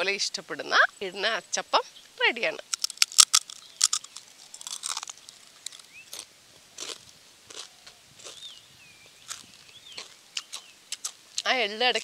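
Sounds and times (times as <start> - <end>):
crisp snack crunching: 2.6 - 8.5, 9.2 - 11.5.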